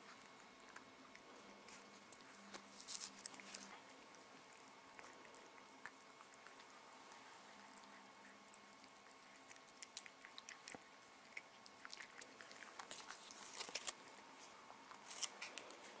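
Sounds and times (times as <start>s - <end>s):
cat licking and chewing: 0.0s - 16.0s.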